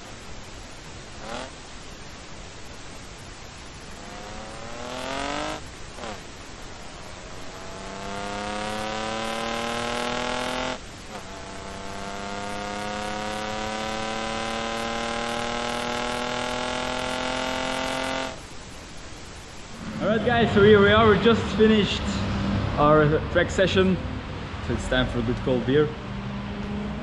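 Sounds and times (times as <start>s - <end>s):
car engine revving hard: 1.0s - 1.7s, 3.9s - 18.4s.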